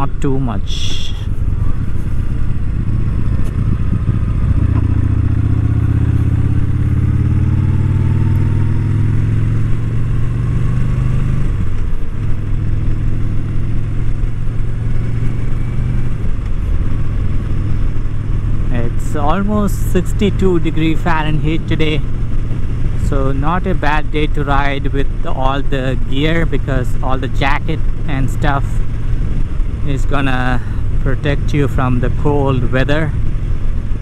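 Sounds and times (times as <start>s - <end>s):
motorcycle engine running: 0.0s - 34.0s
wind noise in helmet: 1.2s - 7.8s.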